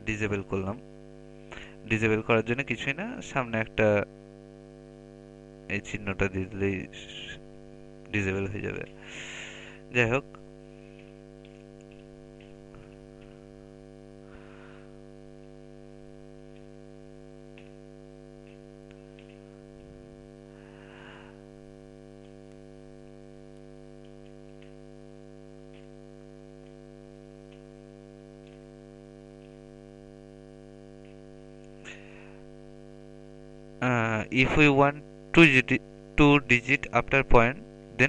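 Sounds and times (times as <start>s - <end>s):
electrical mains hum: 0.0s - 38.0s
faint keyboard clicks: 10.9s - 13.4s, 17.6s - 17.8s, 18.4s - 19.9s, 24.0s - 24.8s, 25.7s - 26.0s, 27.5s - 27.8s, 28.4s - 28.7s.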